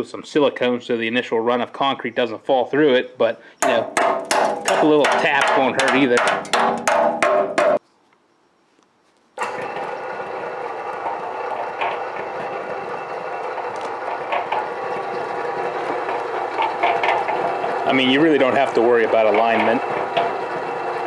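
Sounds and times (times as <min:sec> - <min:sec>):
cement mixer running: 0:03.6 - 0:07.7, 0:09.4 - 0:21.0.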